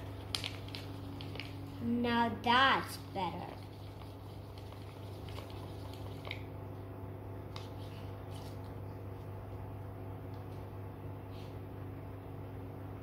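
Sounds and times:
steady low hum: 0.0s - 13.0s
paintbrush squishing wet paint: 3.1s - 6.5s.

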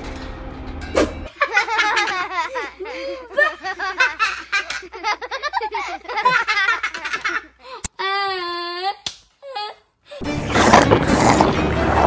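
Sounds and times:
girl laughing: 1.3s - 10.2s.

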